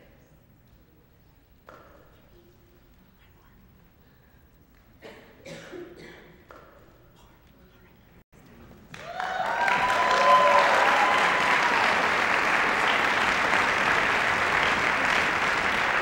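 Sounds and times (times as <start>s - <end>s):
audience applause: 8.9s - 16.0s
cheering voices: 9.0s - 16.0s.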